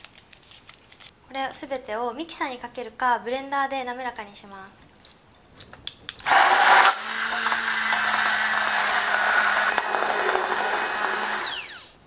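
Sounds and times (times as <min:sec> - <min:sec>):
hand blender running: 0:06.3 - 0:12.0.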